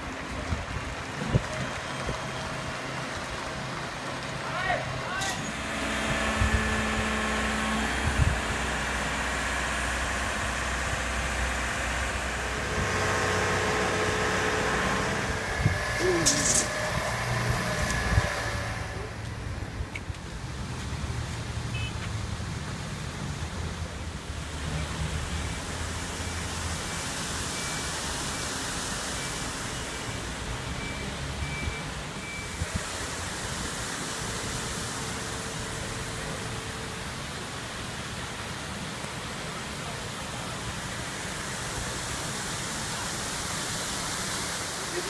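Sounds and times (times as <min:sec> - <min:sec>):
steady rushing noise: 0:00.0 - 0:21.6
diesel engine rumbling: 0:00.0 - 0:45.0
faint repeated beep: 0:30.8 - 0:32.6.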